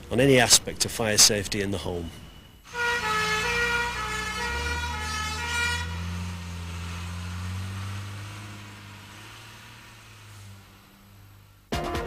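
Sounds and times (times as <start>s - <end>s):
engine rumble: 0.0s - 11.7s
fire engine two-tone horns: 2.6s - 11.5s.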